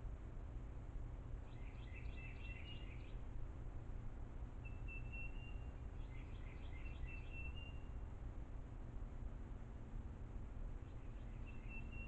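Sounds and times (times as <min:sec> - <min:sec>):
low background rumble: 0:00.0 - 0:12.0
songbird singing: 0:01.3 - 0:03.4, 0:04.4 - 0:08.1, 0:10.6 - 0:12.0.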